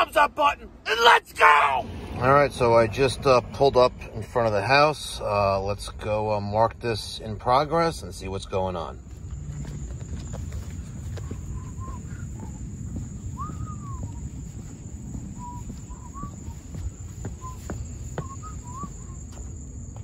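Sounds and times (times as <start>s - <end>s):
crickets trilling: 1.0s - 20.0s
low rumble: 1.7s - 20.0s
footsteps on pavement: 8.5s - 20.0s
whistled bird calls: 10.2s - 19.5s.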